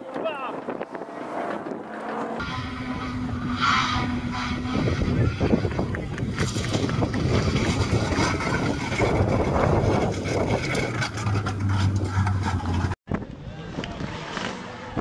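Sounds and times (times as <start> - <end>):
wind buffeting microphone: 0.0 - 14.2
car engine running hard: 0.6 - 15.0
tyre squeal: 2.4 - 12.9.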